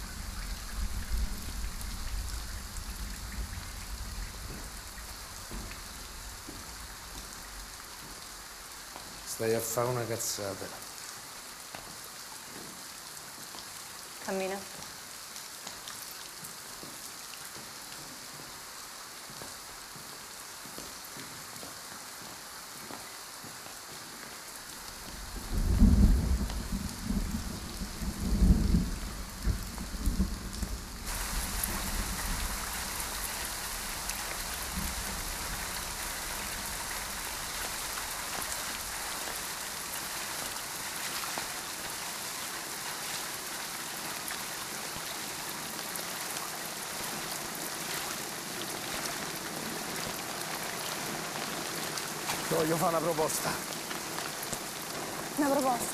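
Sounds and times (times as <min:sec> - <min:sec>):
thunder rolling: 0:00.0 - 0:07.2, 0:25.1 - 0:39.0
heavy rain on pavement: 0:00.0 - 0:55.9
rain: 0:00.0 - 0:55.9.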